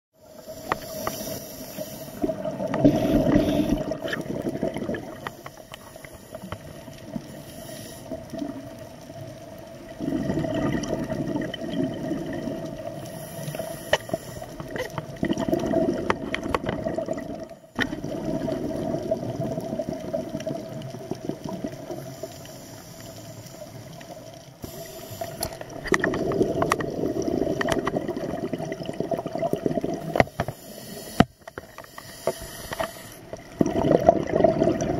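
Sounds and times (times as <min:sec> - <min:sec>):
diver breathing through regulator: 0:00.3 - 0:04.2, 0:05.1 - 0:08.2, 0:13.0 - 0:14.8, 0:24.6 - 0:27.7, 0:30.1 - 0:33.3
bubbles gurgling: 0:02.0 - 0:05.8, 0:08.1 - 0:13.7, 0:14.5 - 0:22.1, 0:25.2 - 0:30.4, 0:33.2 - 0:34.9.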